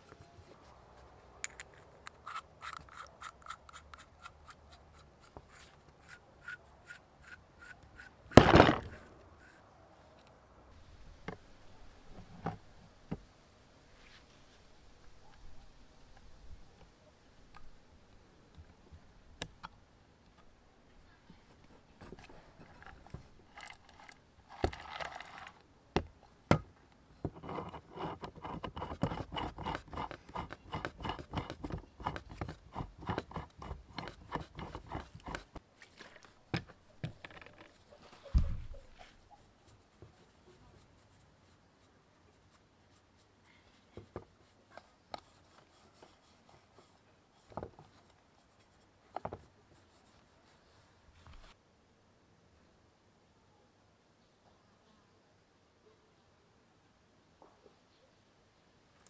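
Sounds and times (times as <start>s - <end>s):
thump: 8.4s - 9.0s, 38.3s - 38.7s
rag rubbing on drill: 27.4s - 35.6s.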